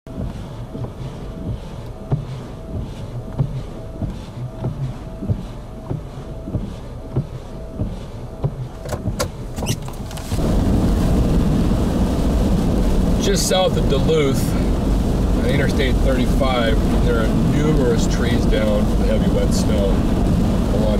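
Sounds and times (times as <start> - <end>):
vehicle road and engine rumble: 0.1 - 20.9
wind buffeting microphone: 9.0 - 20.9.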